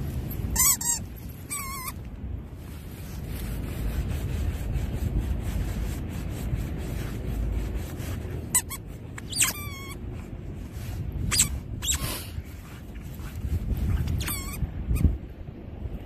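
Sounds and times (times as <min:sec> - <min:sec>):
dog squeaking and whining: 0:00.5 - 0:02.0, 0:08.5 - 0:10.0, 0:11.3 - 0:12.2, 0:13.9 - 0:15.1
dog paws scraping soil: 0:06.4 - 0:15.1.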